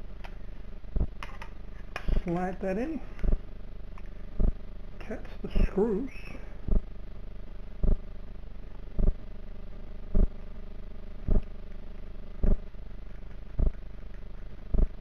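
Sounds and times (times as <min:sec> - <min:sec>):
mechanical hum: 0:00.0 - 0:15.0
dull low thump: 0:06.7 - 0:06.9.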